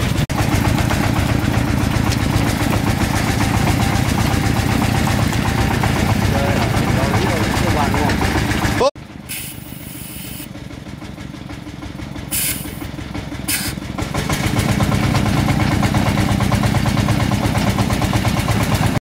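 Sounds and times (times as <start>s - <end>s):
truck engine running: 0.0s - 19.0s
short air hisses: 9.3s - 10.5s, 12.3s - 12.9s, 13.5s - 13.8s.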